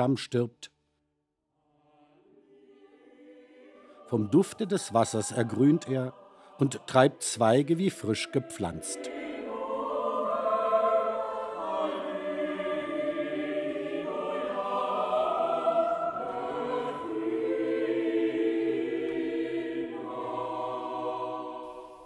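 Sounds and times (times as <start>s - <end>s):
choir singing sustained chords: 1.6s - 22.0s.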